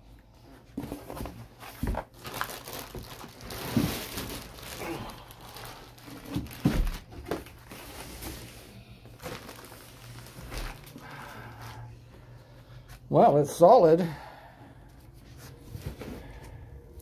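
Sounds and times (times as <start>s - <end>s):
plastic wrapping crinkling: 1.1s - 11.9s.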